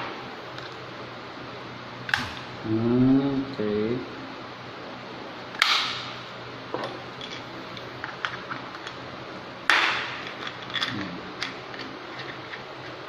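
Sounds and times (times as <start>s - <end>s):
sharp plastic snaps: 5.6s - 6.1s.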